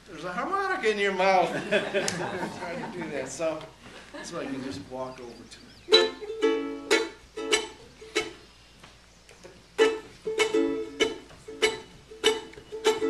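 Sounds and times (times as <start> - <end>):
ukulele strumming chords: 5.9 - 8.4, 9.8 - 13.0.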